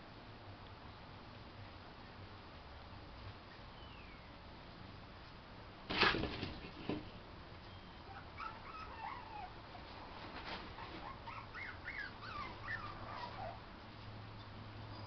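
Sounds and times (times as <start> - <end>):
puppies whimpering: 8.0 - 9.8, 10.8 - 13.6.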